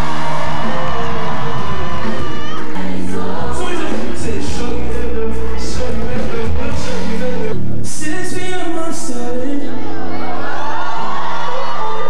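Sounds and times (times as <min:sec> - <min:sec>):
people singing: 0:00.0 - 0:08.0
band playing: 0:00.0 - 0:12.0.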